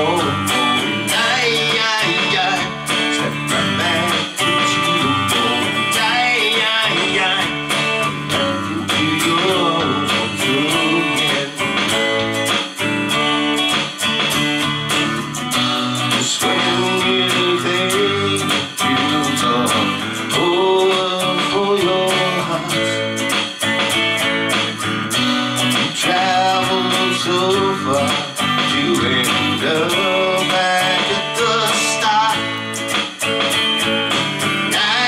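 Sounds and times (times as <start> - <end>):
man singing: 0.0 - 12.6, 15.8 - 23.4, 25.7 - 32.7, 34.6 - 35.0
electric guitar strumming: 0.0 - 35.0.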